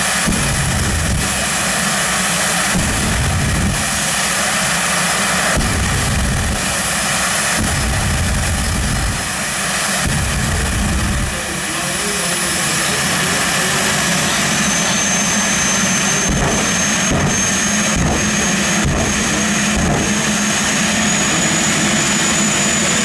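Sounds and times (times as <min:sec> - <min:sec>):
jet engine running: 0:00.0 - 0:23.0.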